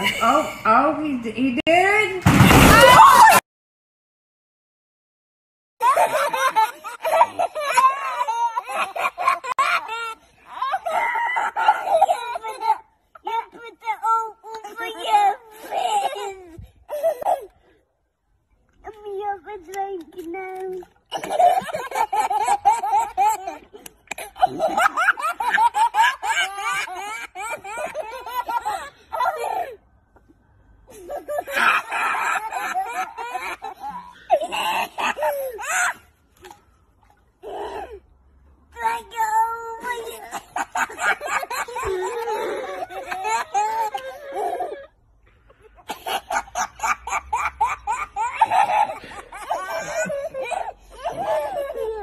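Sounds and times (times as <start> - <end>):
toddlers laughing: 5.8 - 17.5, 20.6 - 29.8, 30.9 - 36.6, 38.8 - 45.0, 45.8 - 52.0.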